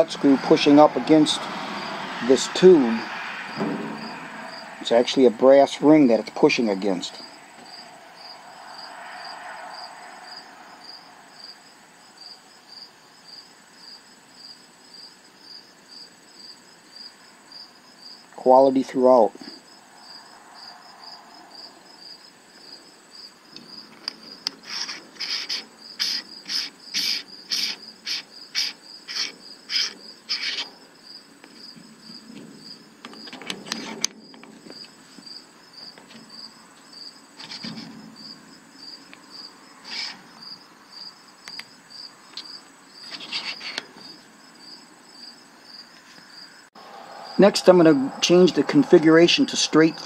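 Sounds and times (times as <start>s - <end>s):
cricket chirping: 0.0s - 18.5s, 19.2s - 50.0s
knocks: 3.6s - 4.4s.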